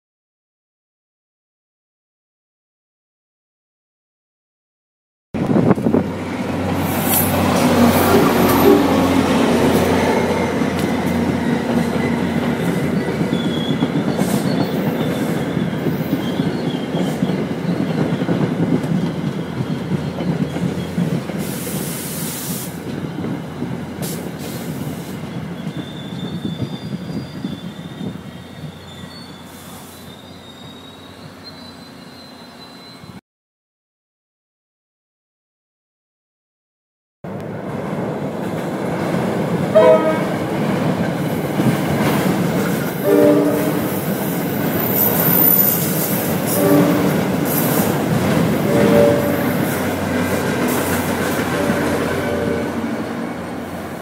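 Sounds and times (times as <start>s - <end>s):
diesel locomotive passing: 5.4s - 33.2s, 37.3s - 54.0s
faint high wheel squeal: 12.0s - 22.7s, 24.5s - 33.2s, 43.9s - 48.0s.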